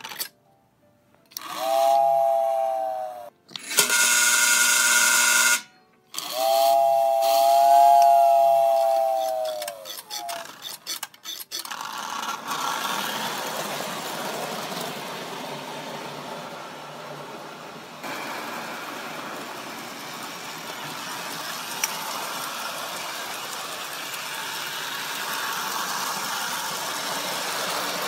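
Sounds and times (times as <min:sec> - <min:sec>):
toy steam locomotive whistle: 0:01.3 - 0:11.8, 0:18.1 - 0:28.0
model train running: 0:01.4 - 0:28.0.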